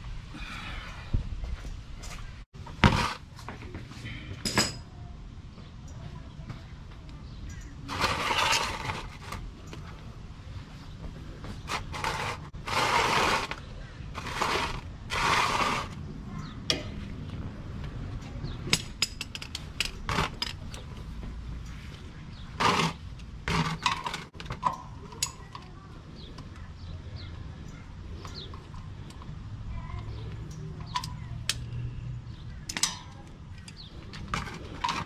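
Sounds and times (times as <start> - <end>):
plastic pan scraping concrete: 7.9 - 9.5, 11.6 - 16.0, 22.3 - 24.4.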